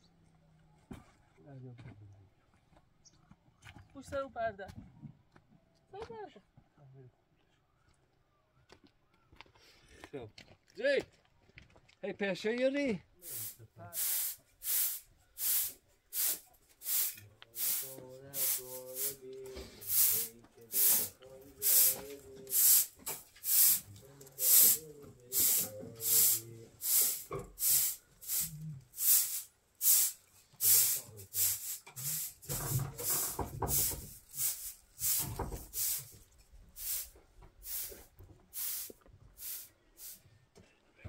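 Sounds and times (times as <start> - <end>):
hand broom sweeping floor: 13.3 - 40.2.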